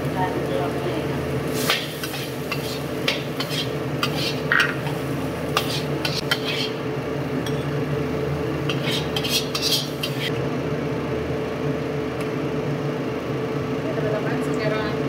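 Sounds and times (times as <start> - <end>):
steady low hum: 0.0 - 15.0
metal spatula scraping a wok: 1.6 - 6.8, 8.6 - 10.3.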